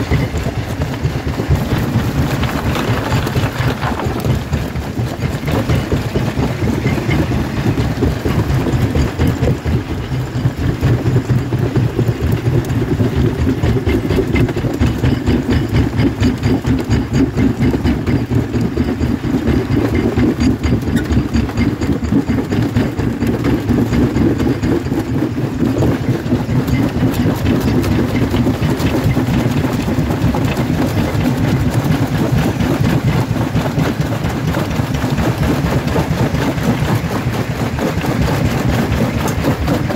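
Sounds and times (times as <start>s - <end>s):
jaw crusher running: 0.0s - 39.9s
rock knocking and cracking: 0.1s - 25.1s.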